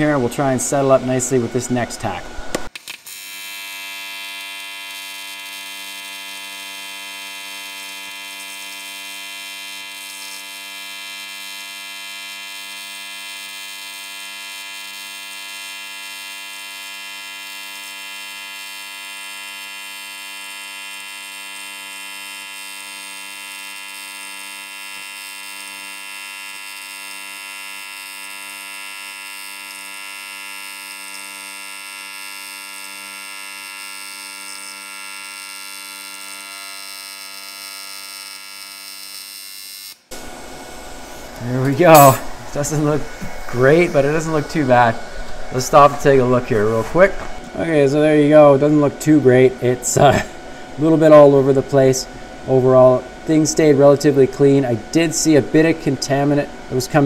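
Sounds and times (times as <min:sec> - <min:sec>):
welding arc buzzing: 0:00.0 - 0:57.0.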